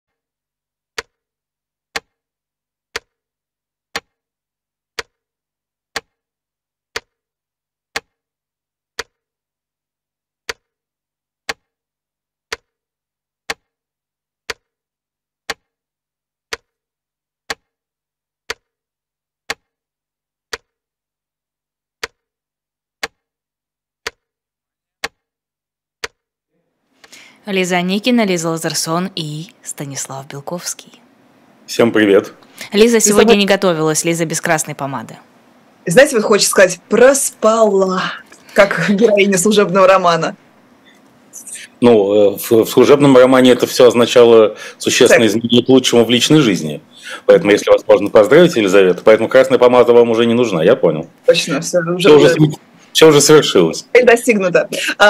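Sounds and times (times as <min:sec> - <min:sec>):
clock ticking: 0:01.0 - 0:01.2, 0:01.9 - 0:02.2, 0:02.9 - 0:03.2, 0:03.9 - 0:04.2, 0:04.9 - 0:05.2, 0:05.9 - 0:06.2, 0:06.9 - 0:07.2, 0:07.9 - 0:08.2, 0:09.0 - 0:09.2, 0:10.5 - 0:10.7, 0:11.5 - 0:11.7, 0:12.5 - 0:12.7, 0:13.5 - 0:13.7, 0:14.5 - 0:14.7, 0:15.5 - 0:15.7, 0:16.5 - 0:16.8, 0:17.5 - 0:17.7, 0:18.5 - 0:18.7, 0:19.5 - 0:19.7, 0:20.5 - 0:20.8, 0:22.0 - 0:22.2, 0:23.0 - 0:23.2, 0:24.0 - 0:24.3, 0:25.0 - 0:25.2, 0:26.0 - 0:26.2.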